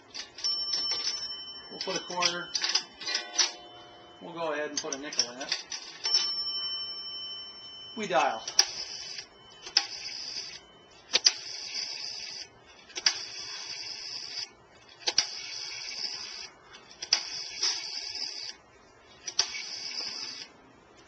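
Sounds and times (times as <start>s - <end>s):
rotary dial clicking and whirring: 8.5s - 18.6s, 19.2s - 20.5s.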